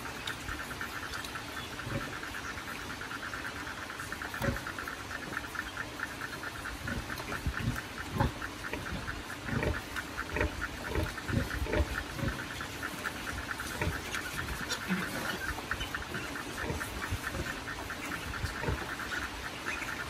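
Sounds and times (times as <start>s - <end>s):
sow grunting: 6.7s - 19.2s.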